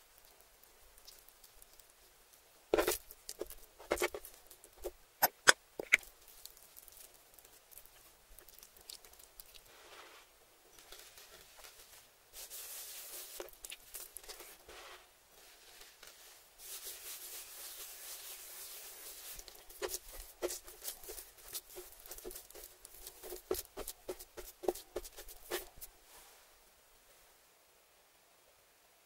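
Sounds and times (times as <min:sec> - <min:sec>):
hands rubbing spice into meat: 0:05.8 - 0:10.2, 0:10.9 - 0:25.9
hands patting meat: 0:19.1 - 0:25.9.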